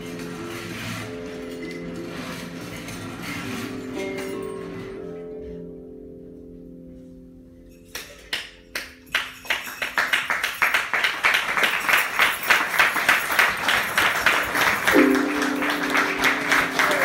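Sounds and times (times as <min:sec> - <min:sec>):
hands clapping: 0:07.9 - 0:17.0
harp chord: 0:14.9 - 0:17.0.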